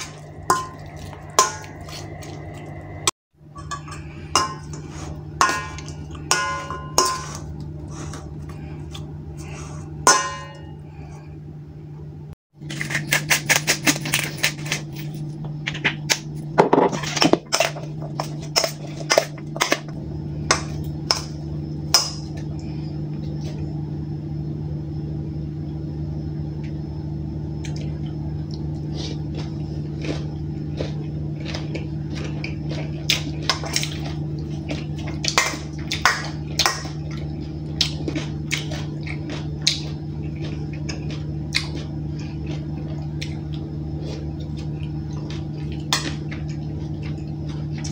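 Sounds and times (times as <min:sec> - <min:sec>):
low hum: 0:00.0 - 0:47.9
spoon clinking on metal bowl: 0:03.6 - 0:07.4.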